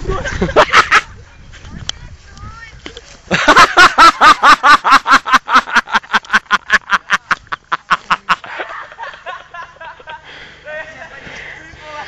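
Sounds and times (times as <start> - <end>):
man laughing hard: 0.2 - 1.1, 3.3 - 11.2.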